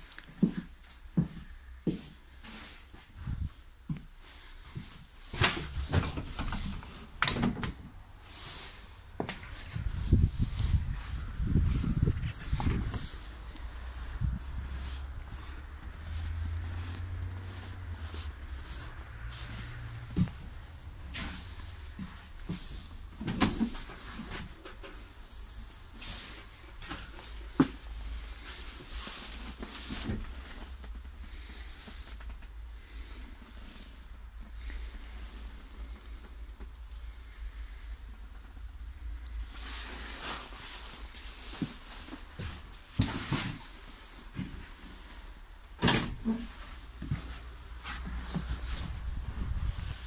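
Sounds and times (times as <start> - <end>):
steady low rumble: 7.9 - 23.2, 46.8 - 50.0.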